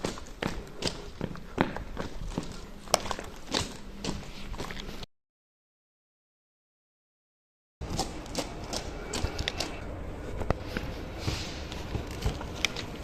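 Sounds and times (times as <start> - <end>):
footsteps: 0.0 - 5.1, 7.8 - 13.0.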